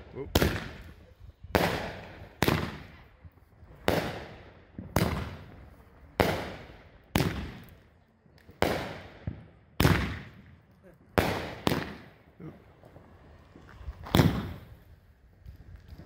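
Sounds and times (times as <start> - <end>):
fireworks bursting: 0.0 - 16.0.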